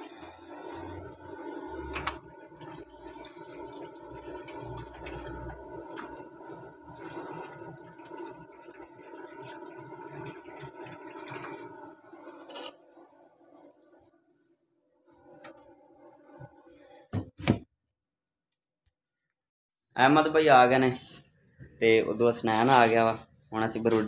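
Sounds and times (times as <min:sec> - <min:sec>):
water pouring into tray: 0:01.2 - 0:13.2.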